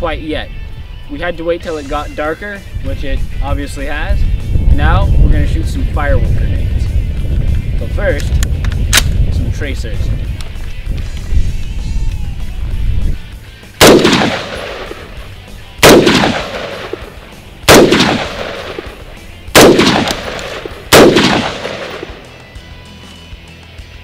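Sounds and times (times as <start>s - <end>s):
rifle shots with long echo: 13.8s - 15.2s, 15.8s - 22.3s.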